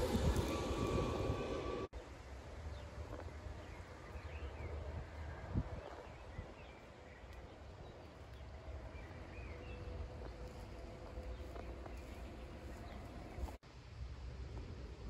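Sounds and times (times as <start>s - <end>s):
low steady rumble: 0.0s - 15.0s
small birds chirping: 5.9s - 13.6s.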